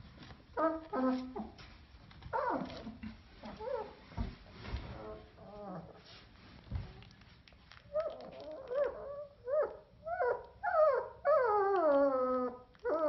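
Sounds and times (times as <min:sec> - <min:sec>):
puppy whining: 0:00.5 - 0:01.6, 0:02.3 - 0:04.0, 0:04.9 - 0:06.0, 0:07.9 - 0:13.0.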